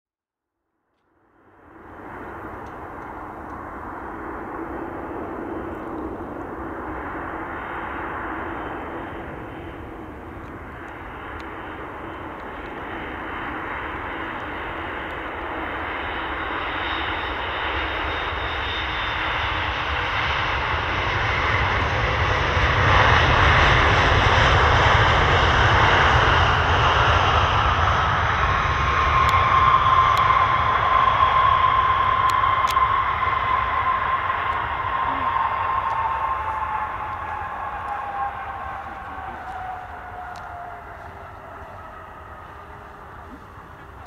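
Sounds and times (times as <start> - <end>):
jet engine whine: 0.7 - 44.0
jet engine noise: 1.1 - 44.0.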